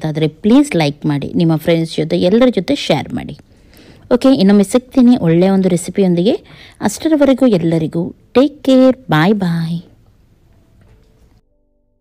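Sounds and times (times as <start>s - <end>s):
quiet background music: 0.0s - 12.0s.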